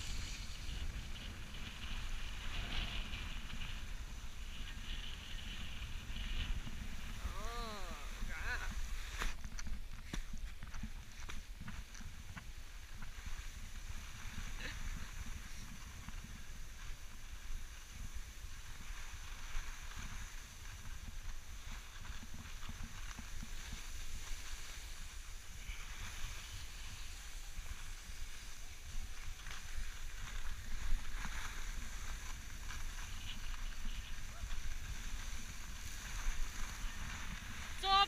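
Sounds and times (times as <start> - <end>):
skis scraping over snow: 0.0 - 38.0
wind rumbling on microphone: 0.0 - 38.0.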